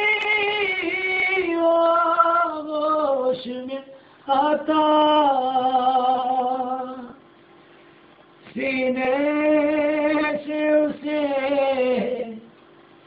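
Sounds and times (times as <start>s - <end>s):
man singing unaccompanied: 0.0s - 7.2s, 8.5s - 12.5s
singer breathing: 3.9s - 4.3s.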